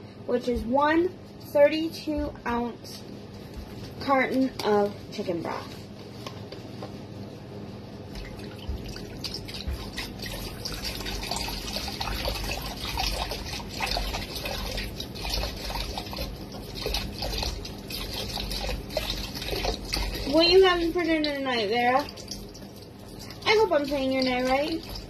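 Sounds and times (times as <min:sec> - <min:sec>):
broth pouring into a pot: 0:09.1 - 0:20.4.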